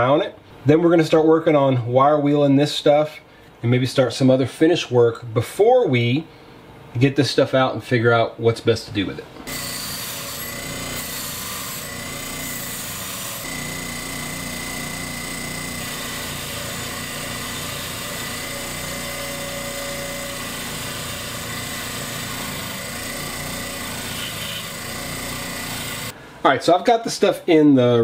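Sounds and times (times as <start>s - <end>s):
bench grinder motor running: 9.5s - 26.1s.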